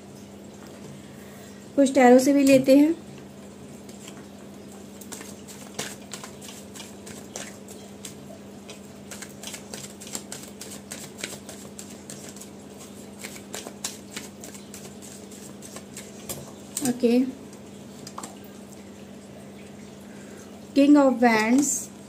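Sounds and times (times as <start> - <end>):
cards being shuffled: 5.0 - 16.9.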